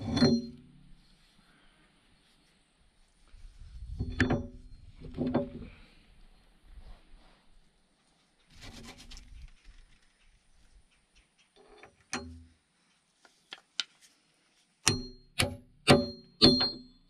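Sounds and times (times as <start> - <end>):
hammer striking steel pin: 14.8 - 17.0.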